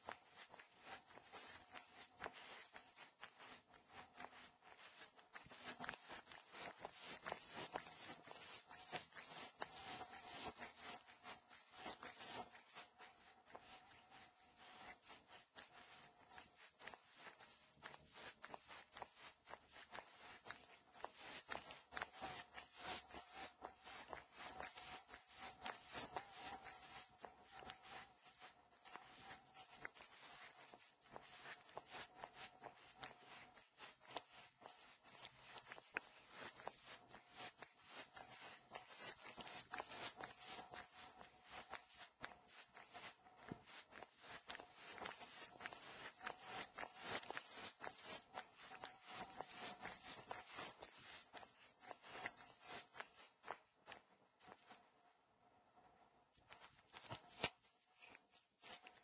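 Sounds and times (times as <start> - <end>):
cat licking a finger: 0.0 - 54.8.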